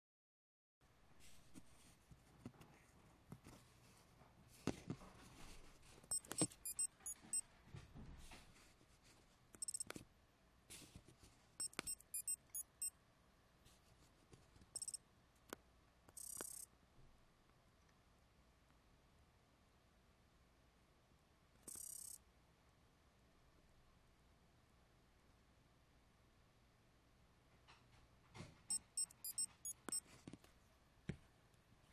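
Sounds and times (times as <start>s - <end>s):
button clicks: 6.1s - 7.4s, 9.6s - 10.0s, 11.6s - 12.7s
high electronic beeps and chirps: 6.1s - 7.4s, 9.6s - 9.8s, 11.6s - 12.9s, 14.8s - 15.0s, 28.7s - 30.0s.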